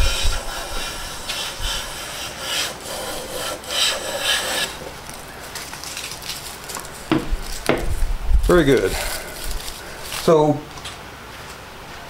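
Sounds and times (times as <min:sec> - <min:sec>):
hand plane hissing strokes: 0:00.0 - 0:05.0.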